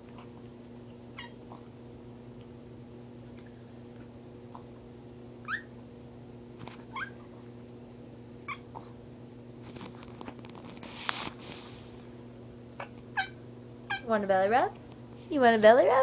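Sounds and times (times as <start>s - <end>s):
small dog whining: 1.1s - 1.7s, 5.4s - 5.8s, 6.8s - 7.3s, 8.4s - 9.0s, 12.8s - 14.1s
scratchy rustling on microphone: 9.6s - 12.0s.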